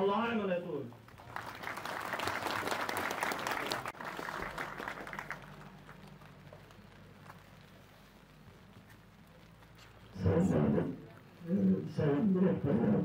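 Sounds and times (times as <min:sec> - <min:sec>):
audience applauding: 0:01.1 - 0:07.3.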